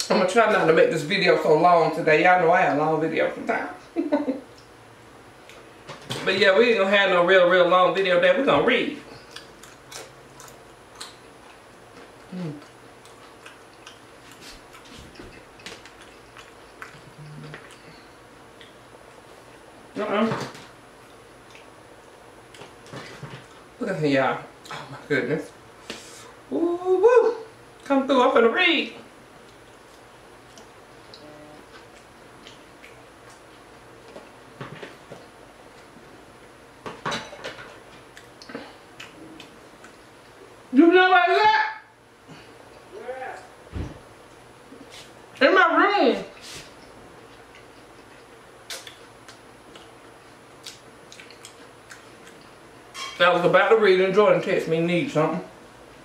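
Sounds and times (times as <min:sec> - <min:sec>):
crunchy chewing: 0:09.1 - 0:19.6, 0:21.0 - 0:23.7, 0:46.4 - 0:52.7
person humming mm: 0:12.3 - 0:12.7
wet mouth clicks: 0:47.6 - 0:49.9.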